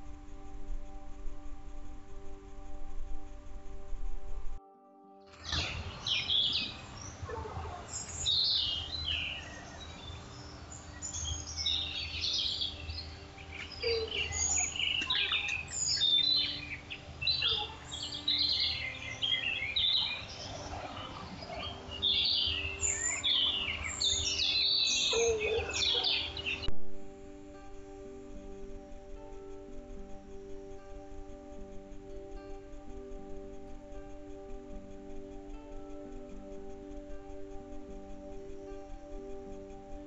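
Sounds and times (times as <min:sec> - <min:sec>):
faint low rumble: 0:00.0 - 0:04.6
birds chirping and trilling: 0:05.4 - 0:26.7.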